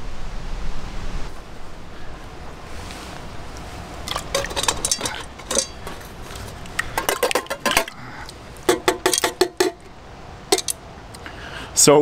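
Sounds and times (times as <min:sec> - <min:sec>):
tin can knocking against pot: 0:04.1 - 0:06.1, 0:06.8 - 0:07.9, 0:08.7 - 0:09.9, 0:10.5 - 0:10.8.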